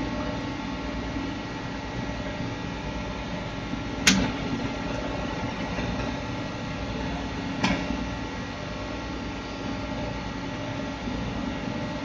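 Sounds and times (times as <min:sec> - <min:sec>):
electrical hum of control panel: 0:00.0 - 0:12.0
sharp click: 0:04.0 - 0:04.4.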